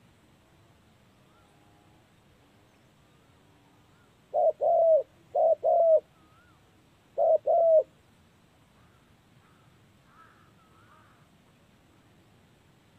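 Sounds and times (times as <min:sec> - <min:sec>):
faint bird chirps: 0:01.1 - 0:07.9, 0:08.8 - 0:11.4
dove cooing: 0:04.0 - 0:06.5, 0:07.2 - 0:07.9.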